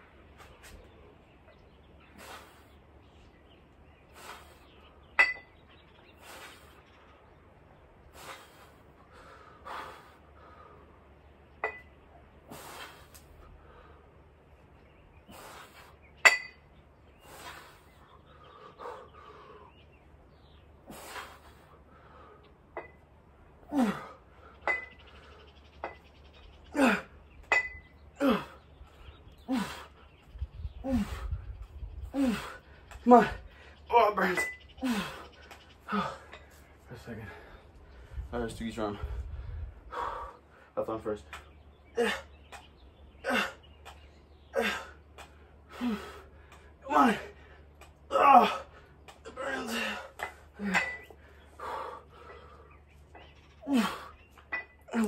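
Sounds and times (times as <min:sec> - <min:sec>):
forceful exhaled breaths: 0:02.0 - 0:02.9, 0:04.0 - 0:04.8, 0:06.1 - 0:07.0, 0:08.0 - 0:11.1, 0:12.4 - 0:14.4, 0:15.1 - 0:16.2, 0:17.1 - 0:20.0, 0:20.7 - 0:22.6, 0:28.2 - 0:40.8, 0:44.6 - 0:55.0
iron plates clinking: 0:05.2 - 0:05.6, 0:16.2 - 0:16.7, 0:27.4 - 0:27.9, 0:49.8 - 0:51.2
man grunting with effort: 0:23.7 - 0:24.2, 0:46.8 - 0:47.4, 0:48.1 - 0:50.9.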